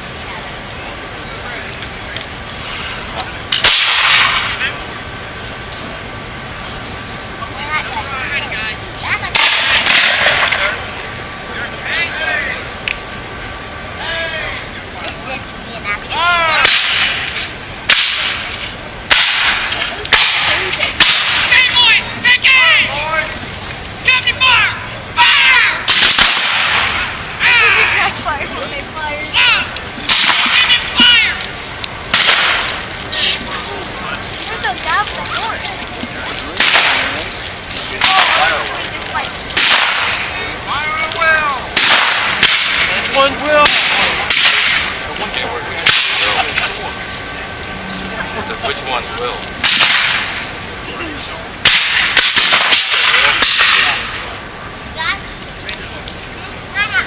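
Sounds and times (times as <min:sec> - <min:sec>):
musket shots: 0:03.5 - 0:04.6, 0:09.3 - 0:10.6, 0:16.6 - 0:21.6, 0:25.9 - 0:27.1, 0:30.1 - 0:30.8, 0:32.1 - 0:32.8, 0:36.6 - 0:37.2, 0:38.0 - 0:38.6, 0:39.6 - 0:40.3, 0:41.8 - 0:45.0, 0:45.8 - 0:46.4, 0:49.6 - 0:50.4, 0:51.6 - 0:54.1.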